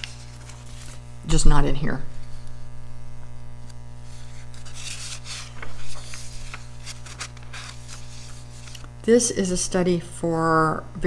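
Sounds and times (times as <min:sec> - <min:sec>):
paper page turning: 0:00.0 - 0:01.1, 0:03.6 - 0:09.0
electrical hum: 0:00.0 - 0:11.0.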